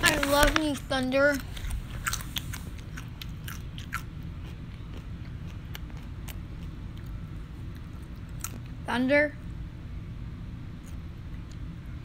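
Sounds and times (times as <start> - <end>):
chips crunching: 0.0 - 8.7.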